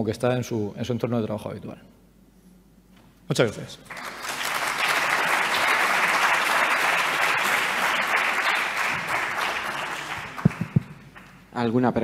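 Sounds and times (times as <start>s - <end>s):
audience applauding: 3.8s - 11.5s.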